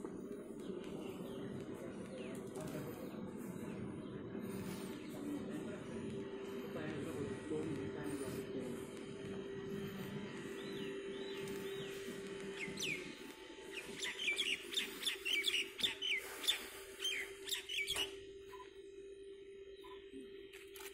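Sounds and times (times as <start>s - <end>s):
small birds chirping: 0.0s - 18.8s
steady low hum: 0.0s - 20.9s.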